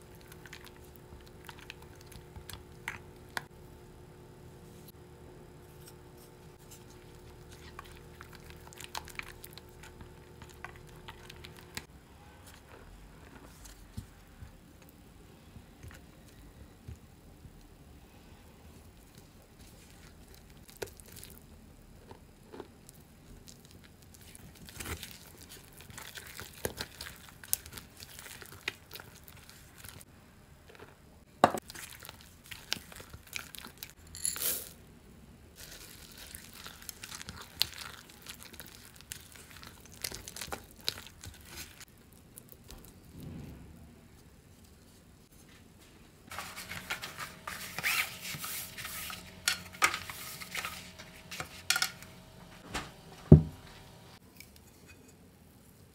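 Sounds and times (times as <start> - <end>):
baking paper crinkling: 22.8 - 30.1, 35.6 - 43.2, 46.3 - 52.6
spatula scraping dough in bowl: 46.3 - 52.1.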